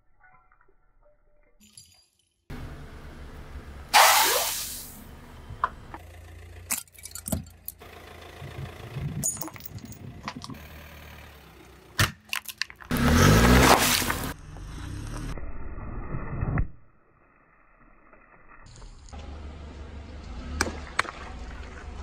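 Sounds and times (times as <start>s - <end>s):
tyre crushing objects: 12.0s - 14.4s
loud crunch: 12.0s - 15.3s.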